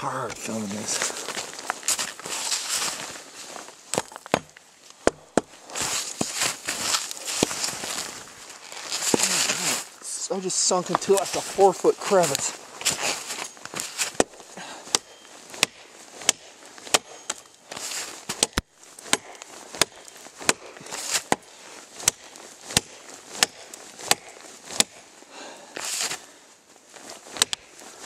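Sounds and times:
tomahawk chopping into wood: 3.9 - 7.9, 12.2 - 25.0, 27.3 - 27.7.

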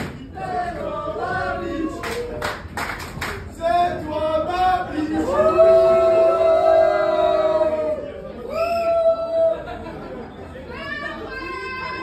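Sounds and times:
crowd clapping in rhythm: 0.0 - 4.3
crowd chanting in unison: 0.2 - 2.4, 3.6 - 8.2.

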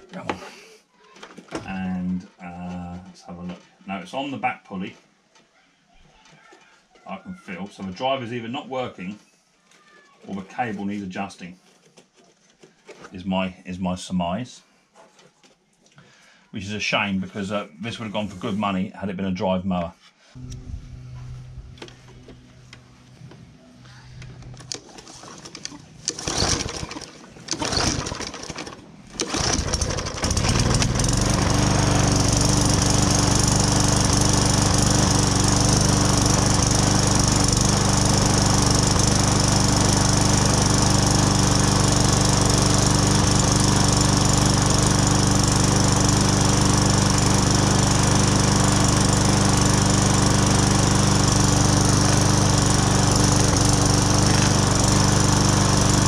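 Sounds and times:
lawn mower engine running: 20.4 - 56.0
lawn mower engine cranking: 24.1 - 56.0.

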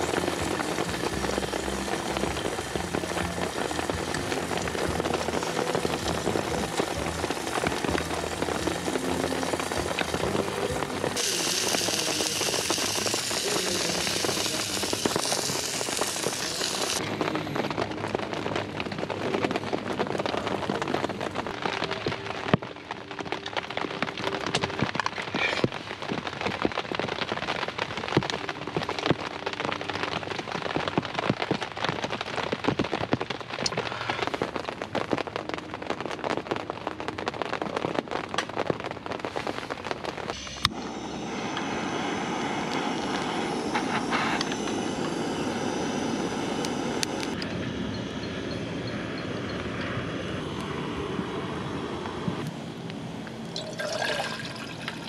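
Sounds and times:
burger patties sizzling: 0.0 - 17.0
gas blowtorch hissing: 0.0 - 17.0, 40.3 - 47.4
heavy rain on a tent: 0.0 - 47.5, 49.9 - 55.0.

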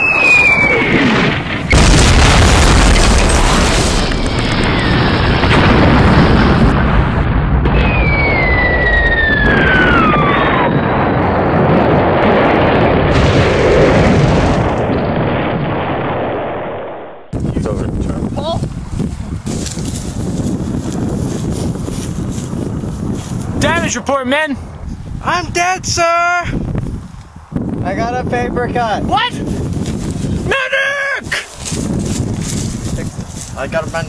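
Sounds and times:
falling bomb whistle: 0.0 - 1.9, 7.7 - 11.2
explosions rumbling: 0.0 - 18.4.

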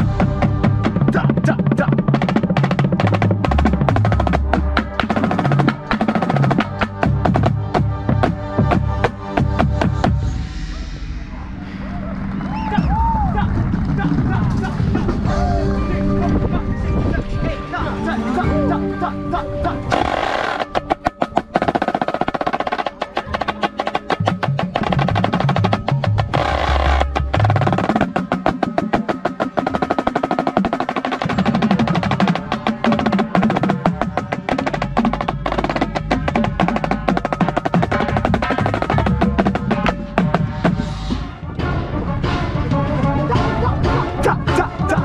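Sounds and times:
marching snare drum rolls: 0.0 - 10.2, 19.9 - 45.0
low bass drum notes: 0.0 - 17.0, 19.8 - 45.0
drum corps sustained notes: 0.0 - 45.0.

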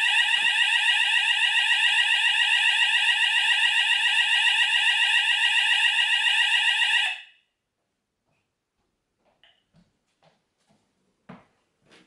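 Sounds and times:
fire alarm pulsing tone: 0.0 - 7.4.

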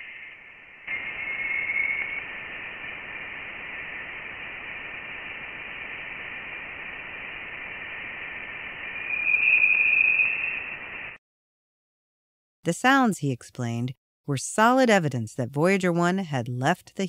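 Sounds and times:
whistle-like tone: 0.0 - 2.6, 8.8 - 11.2
steady hiss with faint high tone: 0.0 - 11.2.

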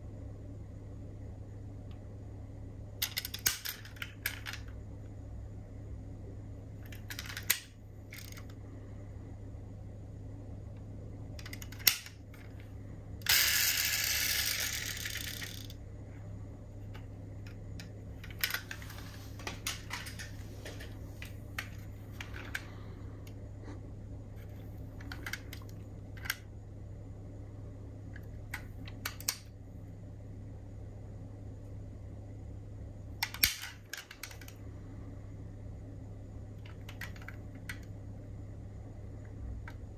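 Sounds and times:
steady low hum: 0.0 - 39.9
metal model cars clicking: 3.0 - 4.7, 6.8 - 8.6, 11.4 - 12.6, 13.2 - 15.8, 17.5 - 18.9, 25.0 - 26.4, 33.2 - 34.6, 36.6 - 37.9.

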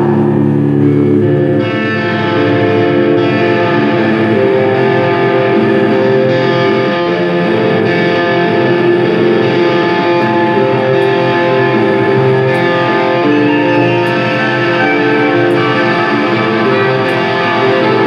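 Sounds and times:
metal band playing live: 0.0 - 18.0.

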